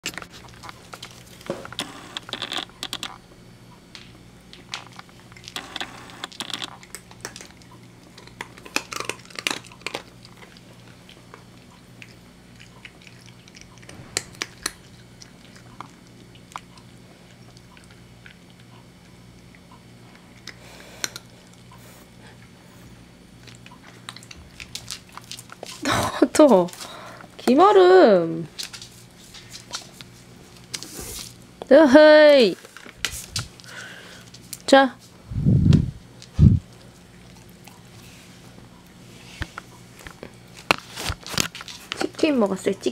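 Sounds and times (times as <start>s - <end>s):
cat crunching dry treats: 0.0s - 3.2s, 4.0s - 18.8s, 19.4s - 21.6s, 23.4s - 27.3s, 40.0s - 42.2s.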